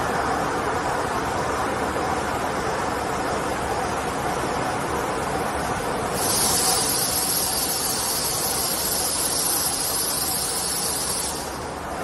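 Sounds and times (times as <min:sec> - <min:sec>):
machine running: 0:06.1 - 0:11.8
loud high hiss: 0:06.1 - 0:12.0.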